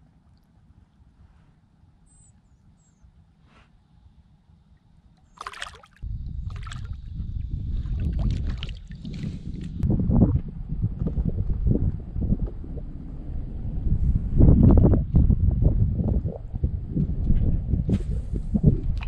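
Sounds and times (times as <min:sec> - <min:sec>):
water splashing: 0:05.3 - 0:09.6
wind buffeting microphone: 0:06.0 - 0:19.0.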